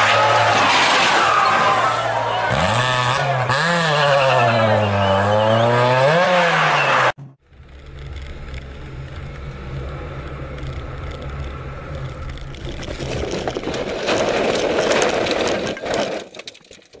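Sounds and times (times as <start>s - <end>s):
car rushing and rattling through snow: 0.0s - 16.4s
car engine running: 7.2s - 13.2s.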